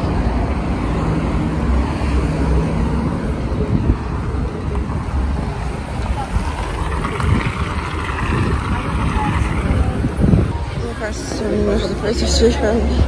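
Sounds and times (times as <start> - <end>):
passing traffic: 0.0 - 13.0
wind on microphone: 3.4 - 13.0.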